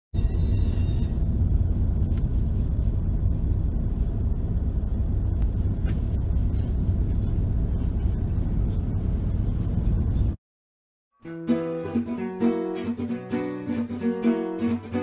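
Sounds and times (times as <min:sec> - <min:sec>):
car engine rumble: 0:01.0 - 0:10.4.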